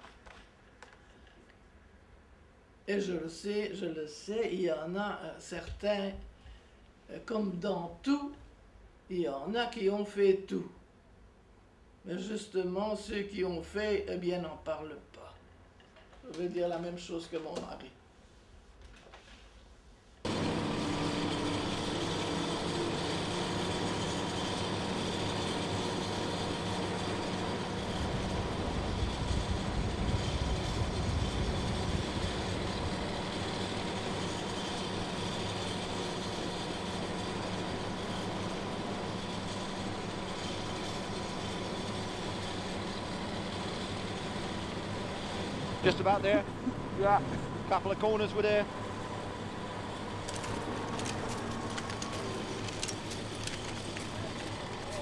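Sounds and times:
half-track engine running: 20.2s - 55.0s.

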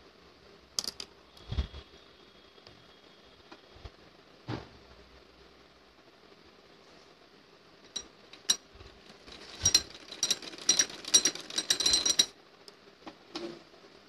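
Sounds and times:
sewing machine stitching: 9.1s - 12.3s.

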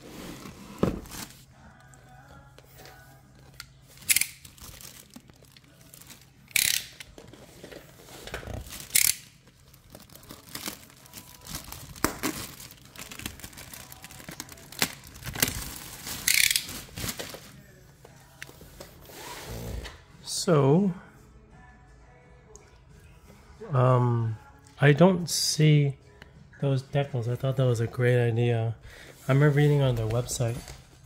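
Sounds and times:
plastic wrap crinkling: 3.8s - 6.6s, 8.5s - 17.7s
plastic wrap ripping: 3.9s - 7.0s, 8.4s - 17.6s.

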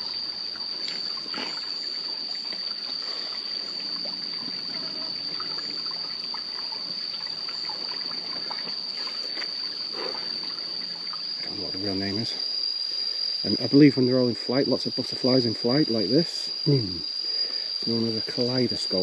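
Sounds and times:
faint trickle of water: 0.0s - 12.2s
high-pitched insect drone: 0.0s - 19.0s.

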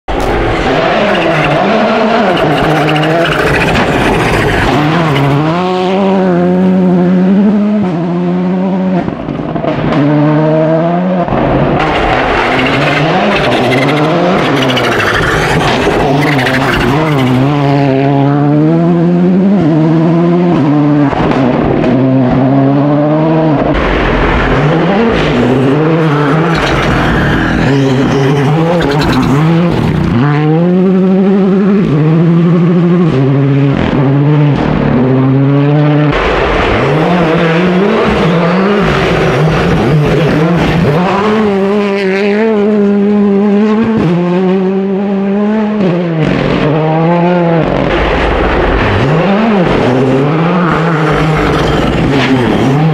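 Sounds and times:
gravel under tyres: 0.1s - 5.7s
rally car engines revving: 0.1s - 52.9s.

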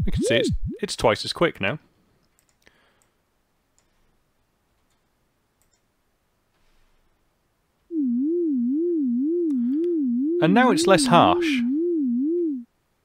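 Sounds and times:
wobbling synthesizer sine tone: 0.0s - 0.9s, 7.9s - 12.6s
faint clicks: 2.2s - 4.0s.

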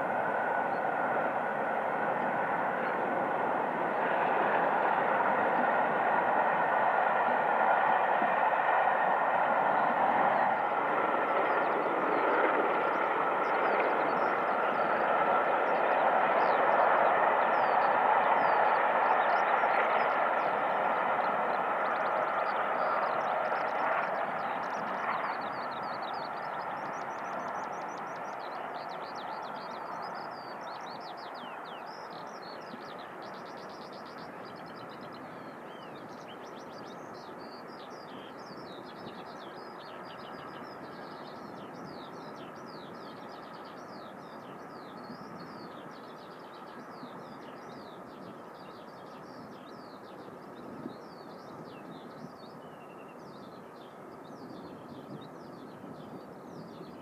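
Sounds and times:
distant steam train running: 0.0s - 57.0s
birdsong chirps: 9.5s - 57.0s.

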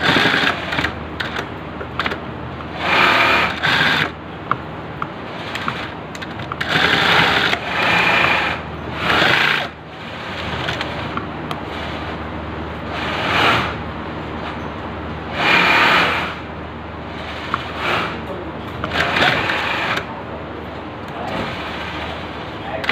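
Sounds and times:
sewing machine stitching: 0.0s - 4.2s, 5.3s - 12.0s, 12.9s - 13.8s, 15.3s - 16.4s, 17.2s - 20.1s
steady motor hum: 0.0s - 22.9s.

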